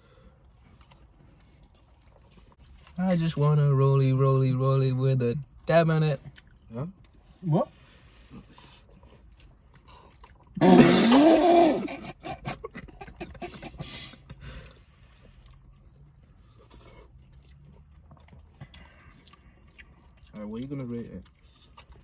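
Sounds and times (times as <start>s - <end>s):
chewing: 0.0s - 3.6s, 5.5s - 10.6s, 12.1s - 22.0s.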